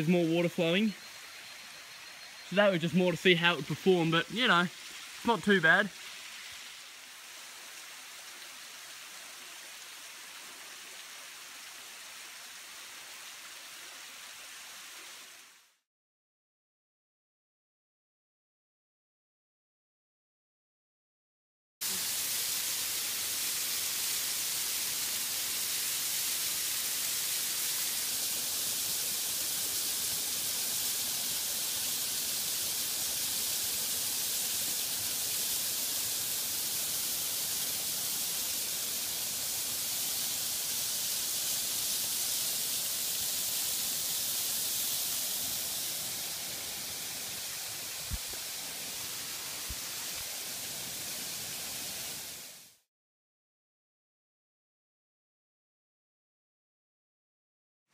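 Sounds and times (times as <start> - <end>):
waterfall rushing: 0.0 - 10.4, 21.8 - 52.5.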